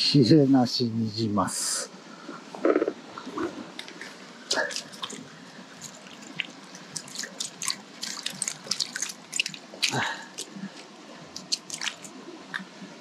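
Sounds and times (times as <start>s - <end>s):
stream hiss: 0.0s - 13.0s
water dripping and splashing: 3.8s - 13.0s.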